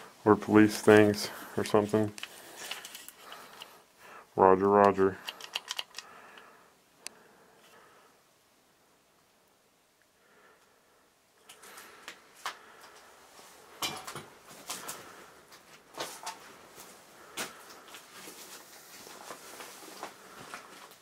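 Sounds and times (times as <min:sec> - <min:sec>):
objects being handled: 0:01.1 - 0:03.8, 0:05.0 - 0:06.5.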